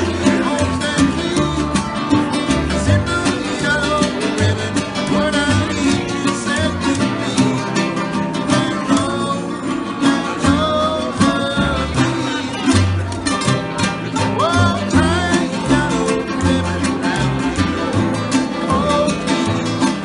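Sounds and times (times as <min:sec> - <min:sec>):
acoustic guitars strummed: 0:00.0 - 0:20.0
man singing: 0:00.0 - 0:20.0
plucked double bass: 0:00.0 - 0:20.0.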